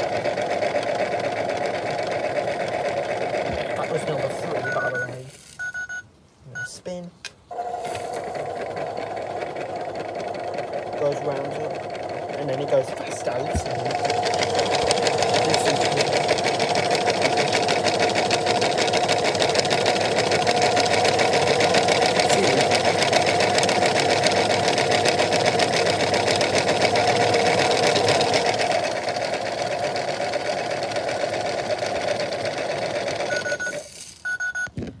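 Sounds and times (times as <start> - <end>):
toy washing machine motor whirring: 0.0 - 6.0, 7.5 - 34.7
short electronic beeps: 4.6 - 6.8, 33.3 - 34.7.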